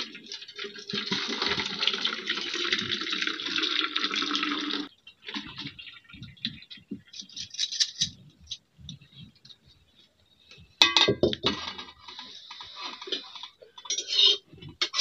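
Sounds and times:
water pouring and splashing: 0.0 - 6.7
metal clinks and scrapes: 7.2 - 8.6, 13.8 - 15.0.

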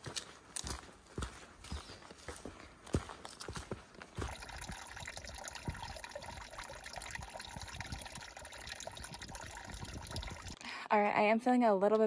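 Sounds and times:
tiny water drips: 4.2 - 10.6
water trickling into a pool: 4.2 - 10.6.

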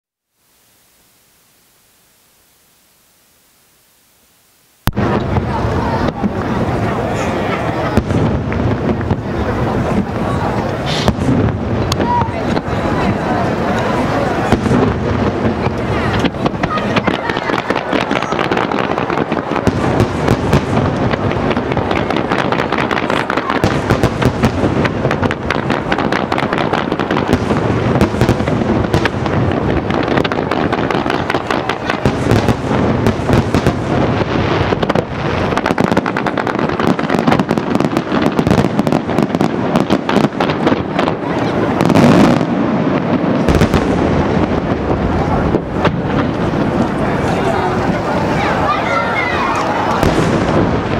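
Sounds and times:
fireworks bursts and bangs: 4.8 - 50.9.

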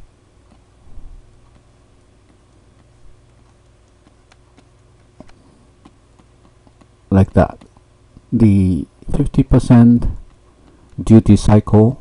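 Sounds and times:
low steady hum: 0.0 - 12.0
stylus tapping on pen tablet: 2.3 - 7.9.

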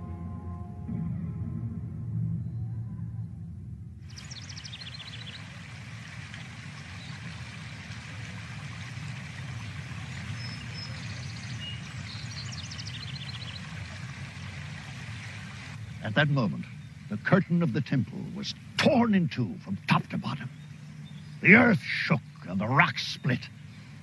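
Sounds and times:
birds chirping: 2.3 - 24.0
stream rushing over rocks: 4.2 - 15.8.

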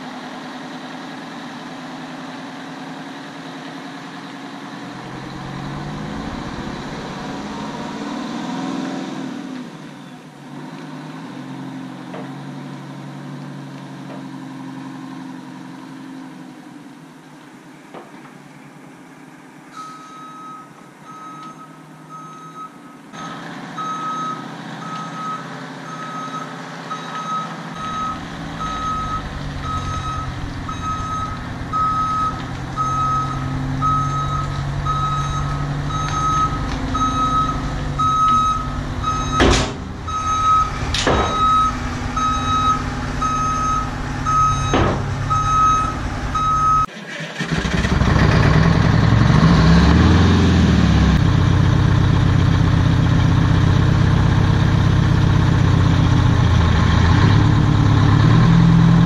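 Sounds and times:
truck diesel engine running: 0.0 - 9.6, 23.2 - 59.0
backup alarm beeping: 19.8 - 46.9.

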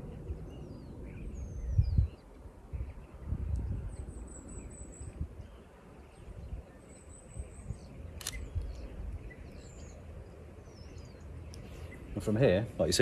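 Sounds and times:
small birds chirping: 0.0 - 13.0
wind noise rumble: 0.0 - 13.0
camera shutter click: 8.2 - 8.6.

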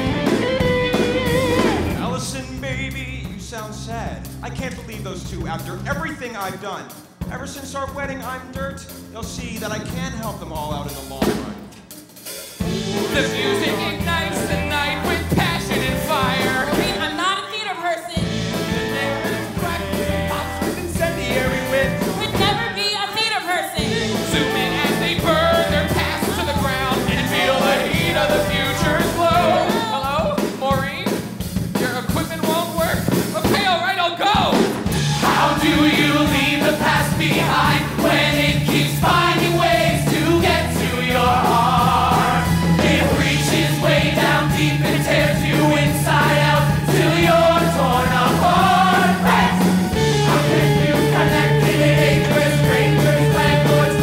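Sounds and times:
rock band playing: 0.0 - 3.4, 6.9 - 17.6, 18.2 - 22.9, 23.8 - 54.0
voices singing together: 12.7 - 17.2, 18.5 - 22.8, 23.8 - 30.3, 35.0 - 54.0.

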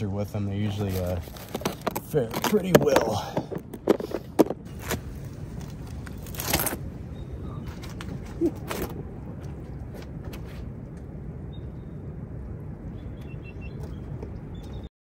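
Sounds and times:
low outdoor rumble: 0.0 - 14.9
rustling: 0.5 - 6.9
footsteps on rocks: 0.6 - 6.8.

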